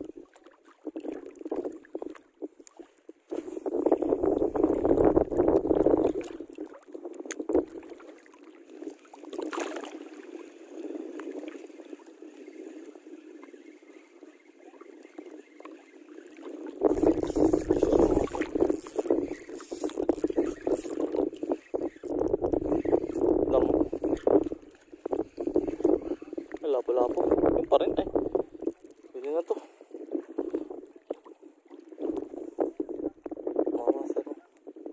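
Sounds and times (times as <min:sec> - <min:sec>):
wind and water noise: 0:00.0 - 0:34.9
wind gusts on microphone: 0:03.3 - 0:08.0, 0:16.4 - 0:34.9.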